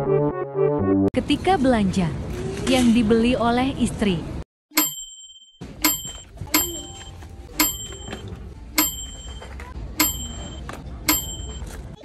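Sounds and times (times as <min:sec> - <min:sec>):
bright ringing ding: 0:04.7 - 0:11.7.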